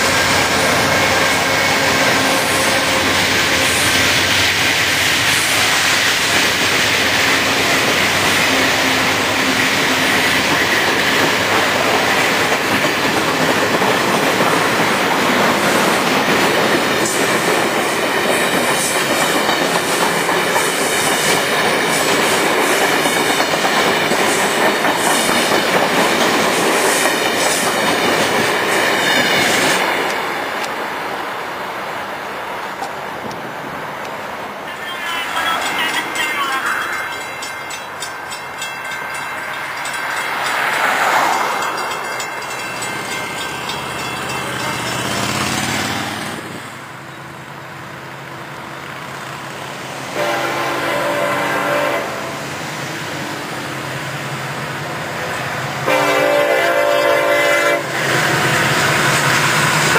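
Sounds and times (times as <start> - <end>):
train wheels rumbling on rails: 0.0 - 31.3, 32.0 - 47.1, 48.8 - 59.9
clickety-clack over rail joints: 9.4 - 30.8, 32.6 - 34.2.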